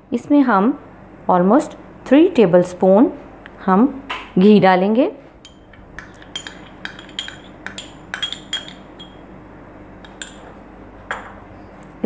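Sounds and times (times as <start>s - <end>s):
kitchenware clinking against glass: 5.4s - 9.2s, 10.0s - 10.5s.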